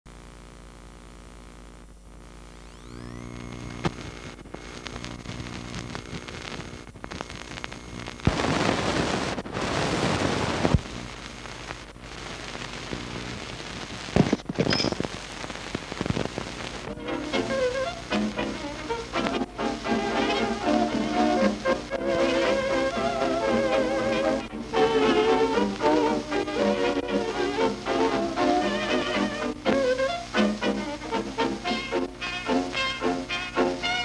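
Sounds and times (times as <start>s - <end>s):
film soundtrack hum: 0.1s - 34.0s
hiss and crackle: 0.1s - 34.0s
clicks and pops: 3.4s - 9.5s, 13.8s - 16.9s.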